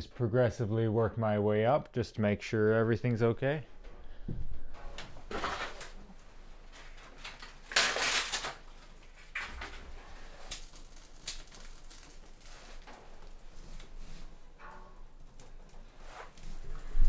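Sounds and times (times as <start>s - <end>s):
small clicks and rustles: 5.0s - 17.0s
bark being torn by hand: 7.2s - 8.7s, 10.5s - 13.0s.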